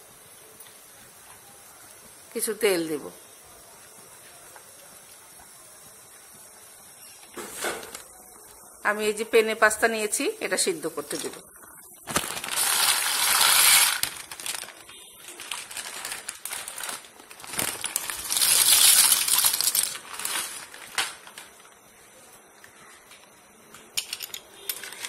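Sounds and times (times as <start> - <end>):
dry pasta pouring into pot: 12.0 - 21.4.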